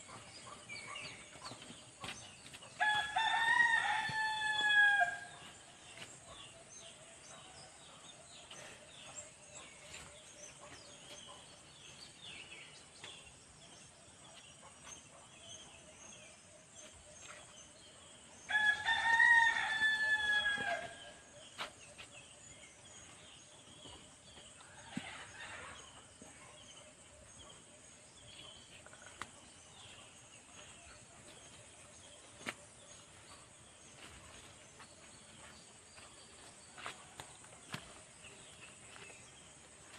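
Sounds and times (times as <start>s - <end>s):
rooster crowing: 2.8s - 5.3s, 18.5s - 21.0s.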